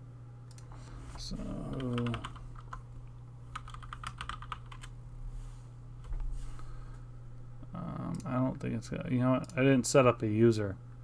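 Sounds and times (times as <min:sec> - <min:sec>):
typing on computer keyboard: 0:03.5 - 0:04.9.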